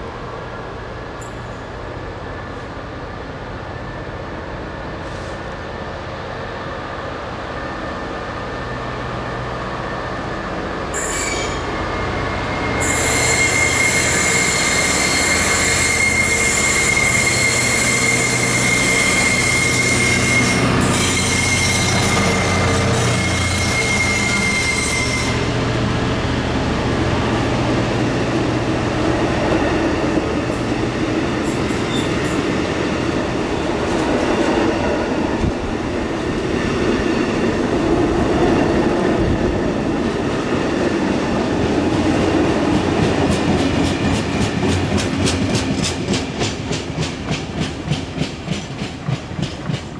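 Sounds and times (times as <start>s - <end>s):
train wheels rumbling on rail: 0.0s - 49.9s
wheels clacking over rail joints: 41.9s - 49.9s.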